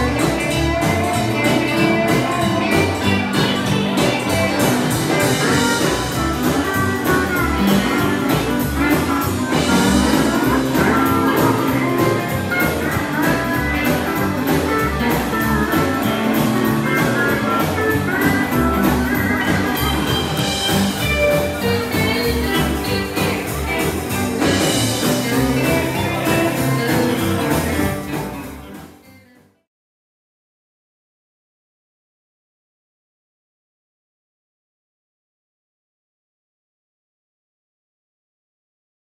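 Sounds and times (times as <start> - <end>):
steady bass beat: 0.0 - 28.0
country band dance tune: 0.0 - 29.3
guitar: 0.0 - 29.6.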